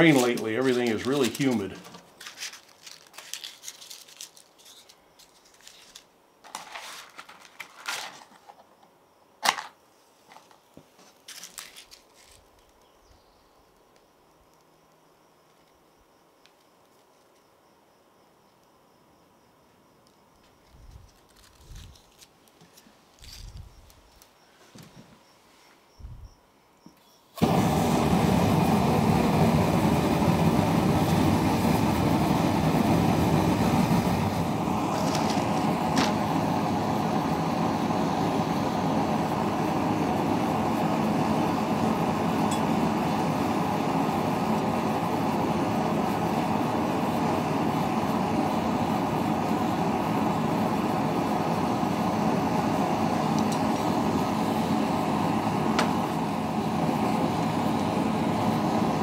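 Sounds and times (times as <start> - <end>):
forge burner roaring: 0.0 - 1.9, 27.4 - 59.0
gas forge lighting: 0.0 - 2.1, 27.3 - 59.0.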